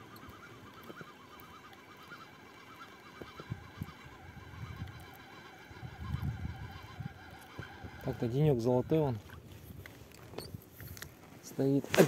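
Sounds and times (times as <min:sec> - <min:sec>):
frogs croaking: 0:00.0 - 0:09.3.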